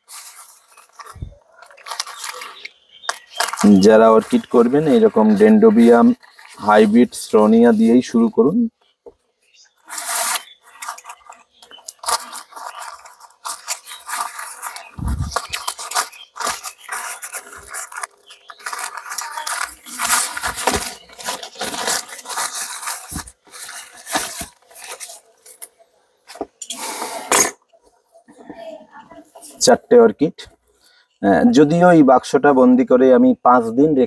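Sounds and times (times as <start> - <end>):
paper crinkling and tearing: 0.0 - 8.1, 9.9 - 25.7.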